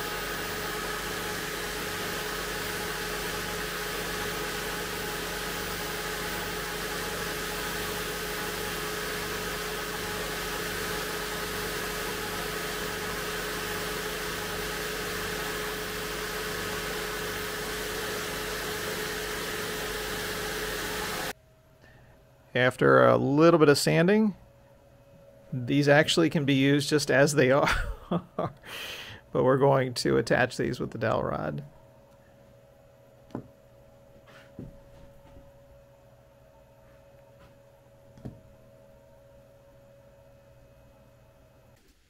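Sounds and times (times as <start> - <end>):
spindle sander running: 0.0 - 21.4.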